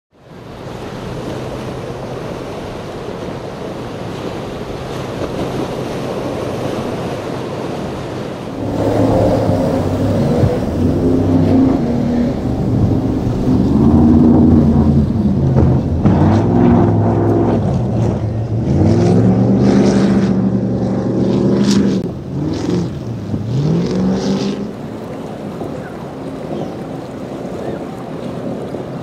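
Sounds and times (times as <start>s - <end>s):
surf: 0.1s - 29.0s
wind: 0.1s - 29.0s
speedboat engines revving: 0.3s - 29.0s.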